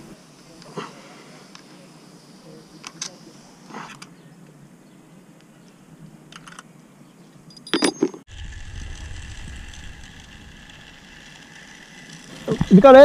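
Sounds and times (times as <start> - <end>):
wind rumble on microphone: 8.3 - 10.6
faint steady whine: 8.3 - 13.0.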